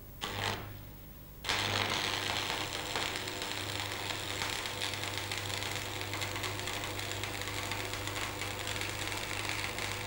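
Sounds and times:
welding arc crackling: 1.5 - 10.0.

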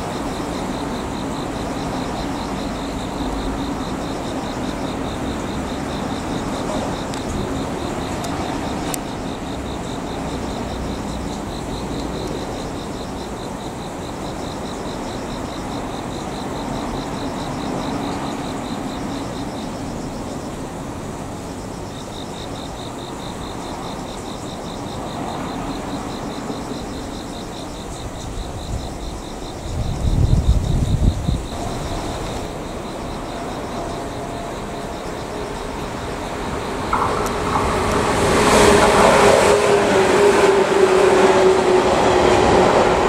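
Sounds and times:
insects chirping trill: 0.0 - 43.0.

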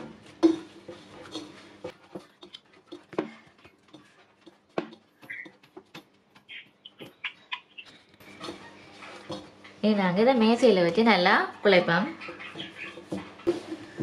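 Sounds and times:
dough slapping against bowl: 0.0 - 7.2.

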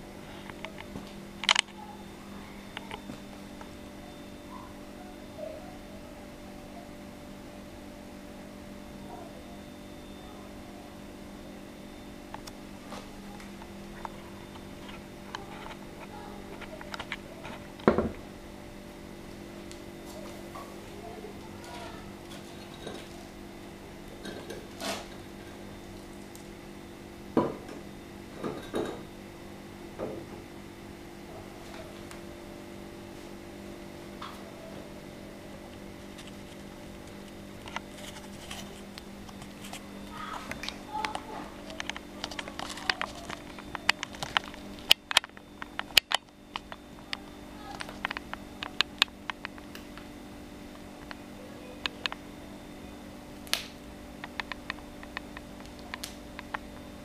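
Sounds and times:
steady low hum: 0.0 - 57.0
sharp clicks and pops: 40.5 - 50.1, 53.4 - 56.8.

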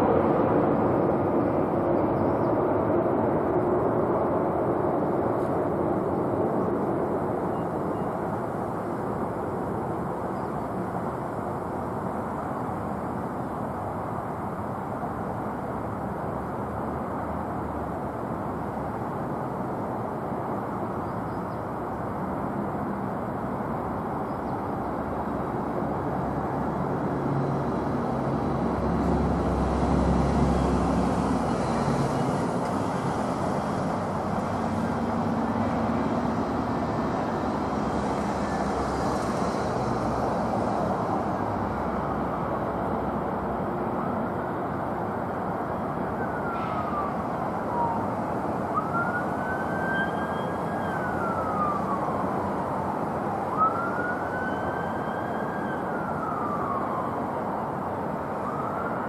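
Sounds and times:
jet airliner engines rumbling: 0.0 - 59.0
siren wailing: 45.7 - 59.0.

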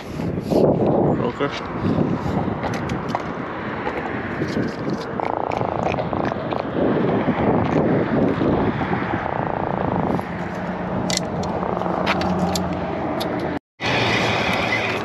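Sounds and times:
sharp clicks: 11.0 - 13.6.

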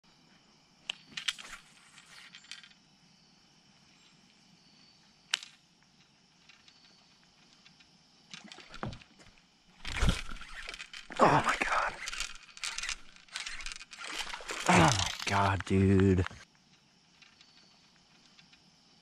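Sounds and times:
faint insect trill: 0.0 - 19.0
knocks and rustles: 6.3 - 11.1
fishing reel clicking: 9.8 - 15.3.

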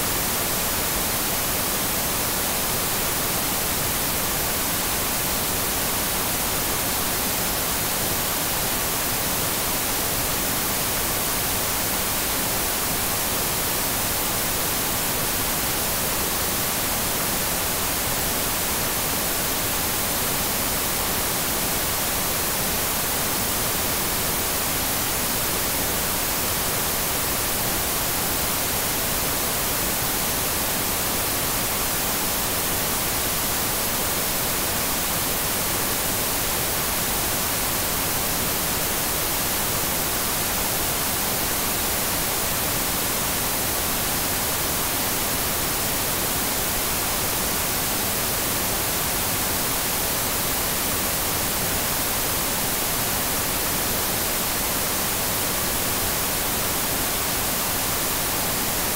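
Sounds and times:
tv static hiss: 0.0 - 58.9.

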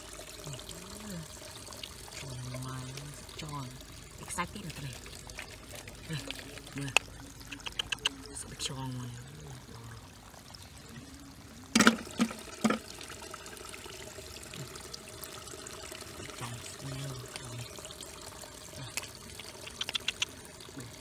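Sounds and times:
water trickling and sloshing: 0.0 - 21.0.

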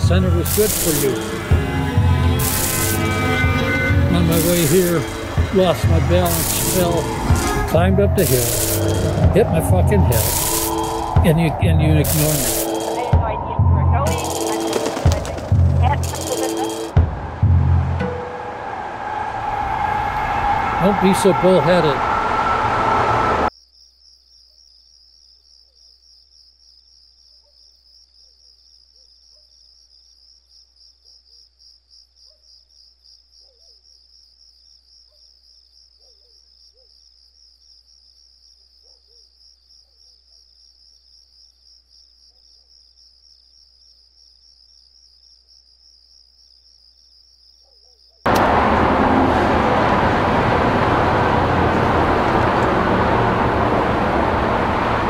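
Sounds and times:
crickets trilling: 0.0 - 1.5, 4.2 - 17.0, 23.5 - 48.3
low hum: 0.0 - 23.5, 48.3 - 55.0
road traffic noise: 0.0 - 23.5, 48.3 - 55.0.

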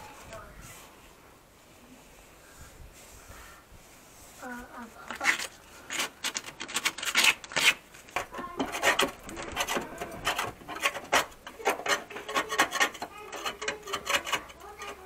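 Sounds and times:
rust scraping off metal: 5.1 - 15.0.

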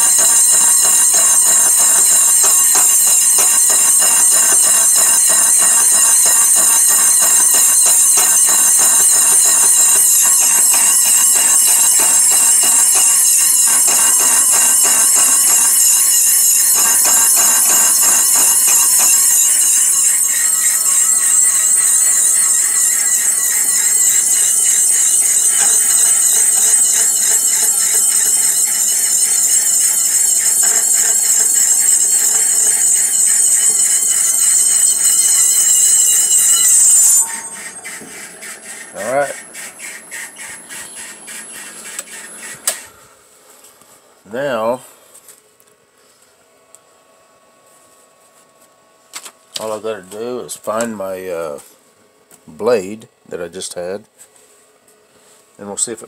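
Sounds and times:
saw cutting metal squeal: 0.0 - 43.0.

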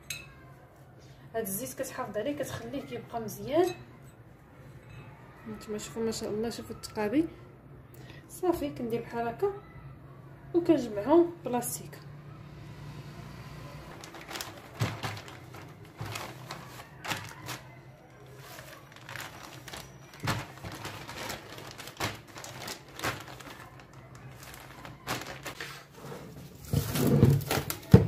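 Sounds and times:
plastic bag crinkling: 13.8 - 28.0.

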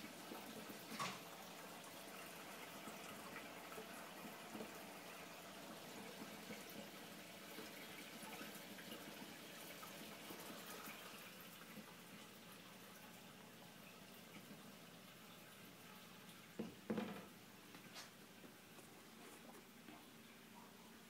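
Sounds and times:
water trickling and splashing: 0.0 - 21.0.

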